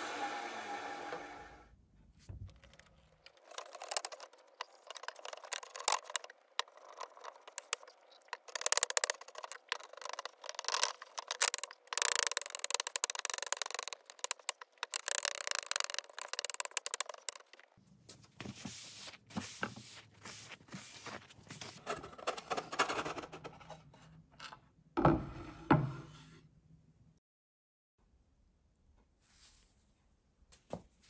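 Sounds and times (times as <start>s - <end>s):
cloth scrubbing wood: 2.7s - 21.8s
paper towel wiping wood: 18.1s - 21.8s.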